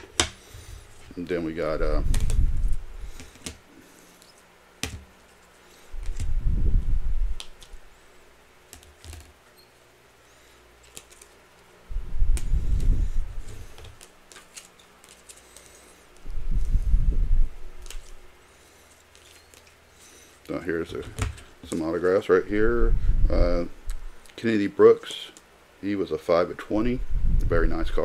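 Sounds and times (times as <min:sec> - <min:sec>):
trading cards clicking: 0:10.8 - 0:11.4.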